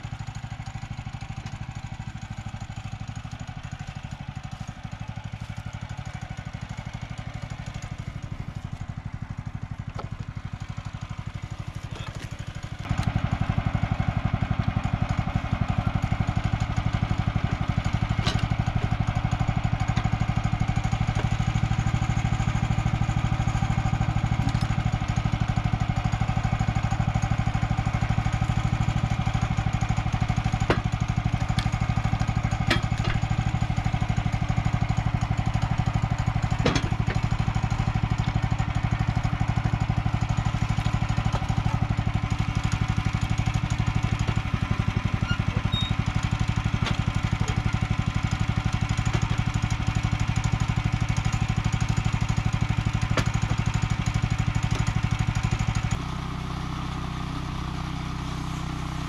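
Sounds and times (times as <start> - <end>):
small engine idling: 0.0 - 59.0
log knocking on steel track: 17.5 - 20.1, 30.5 - 33.6, 36.1 - 37.4.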